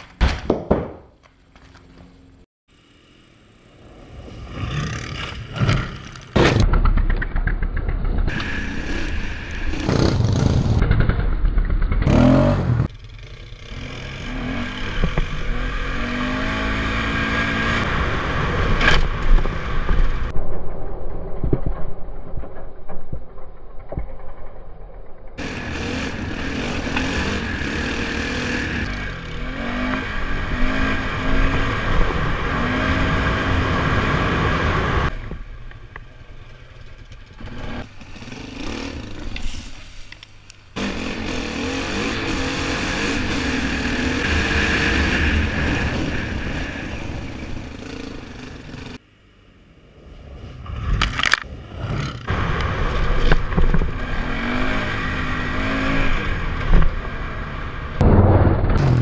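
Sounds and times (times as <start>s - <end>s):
quad engine revving: 12.0s - 18.8s, 25.4s - 35.2s, 37.4s - 39.5s, 40.8s - 49.0s, 51.8s - 57.5s.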